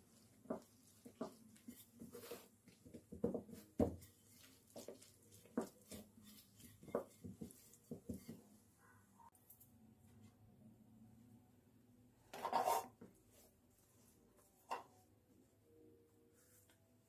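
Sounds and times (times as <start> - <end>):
rolling pin rolling dough on plate: 0.0 - 8.6.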